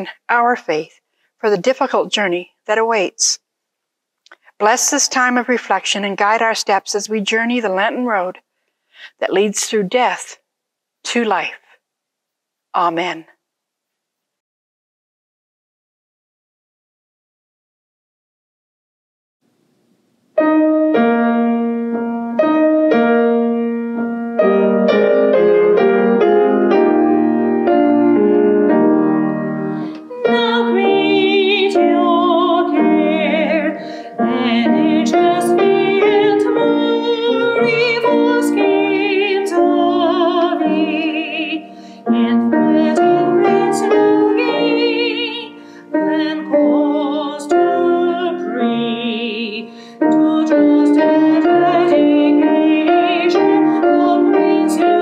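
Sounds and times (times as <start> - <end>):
grand piano playing hymn: 20.4 - 55.0
woman singing with vibrato: 30.0 - 55.0.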